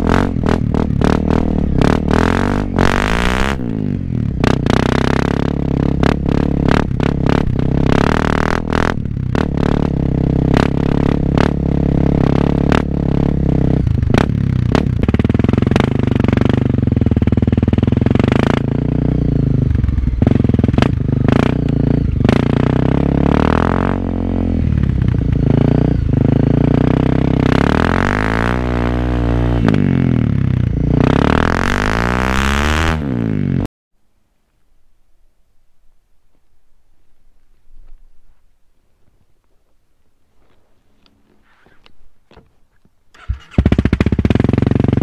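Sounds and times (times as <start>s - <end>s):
motorcycle engine: 0.0s - 33.7s, 43.1s - 45.0s.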